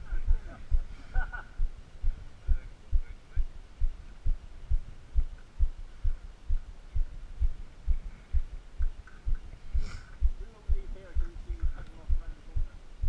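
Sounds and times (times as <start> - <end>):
steady low thumping: 0.0 - 13.0.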